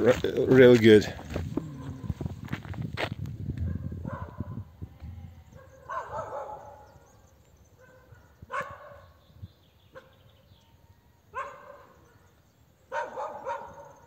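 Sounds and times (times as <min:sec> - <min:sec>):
small dog barking: 0:03.7 - 0:04.6, 0:05.6 - 0:07.0, 0:07.8 - 0:09.0, 0:09.9 - 0:10.2, 0:11.3 - 0:12.0, 0:12.9 - 0:14.0.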